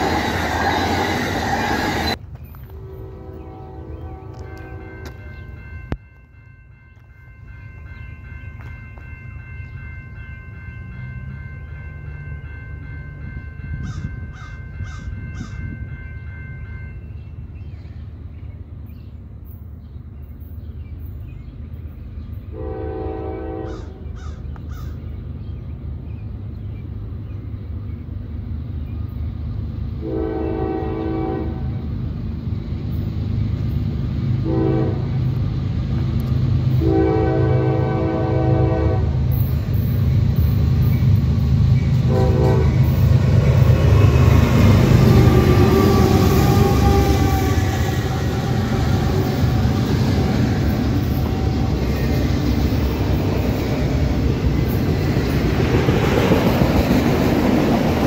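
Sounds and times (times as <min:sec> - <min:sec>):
train horn blasts: 0:00.0 - 0:06.0, 0:22.5 - 0:24.2, 0:30.0 - 0:31.9, 0:34.4 - 0:35.2, 0:36.7 - 0:39.5, 0:42.0 - 0:52.4
diesel locomotive rumble: 0:00.0 - 0:16.0, 0:17.2 - 0:58.0
crow cawing: 0:13.9 - 0:15.6, 0:23.7 - 0:25.0.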